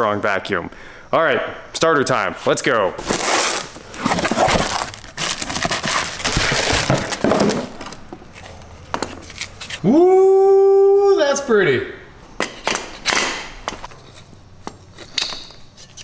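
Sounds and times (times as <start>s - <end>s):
cardboard and bubble wrap rustling: 3.0s - 9.8s
man shouting woo: 9.8s - 11.7s.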